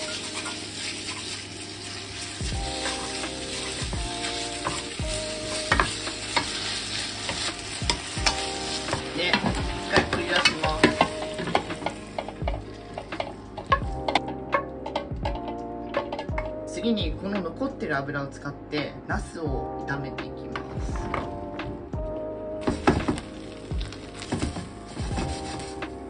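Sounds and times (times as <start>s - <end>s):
meat sizzling in oil: 0.0s - 15.1s, 22.6s - 26.0s.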